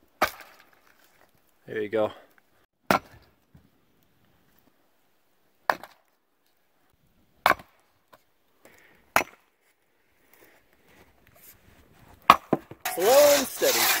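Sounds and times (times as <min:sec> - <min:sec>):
hatchet chopping firewood: 0:00.2 - 0:00.8, 0:02.9 - 0:03.3, 0:05.7 - 0:06.0, 0:07.4 - 0:07.8, 0:09.1 - 0:09.5, 0:12.2 - 0:14.0.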